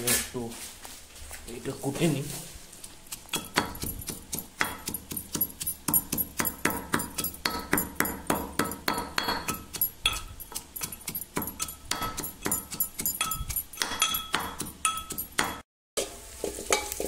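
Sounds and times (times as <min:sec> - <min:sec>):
pestle pounding in a mortar: 0:02.8 - 0:15.6.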